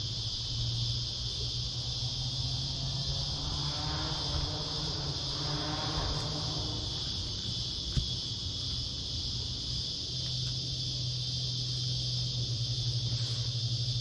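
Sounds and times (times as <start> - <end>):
insects chirring in chorus: 0.0 - 14.0.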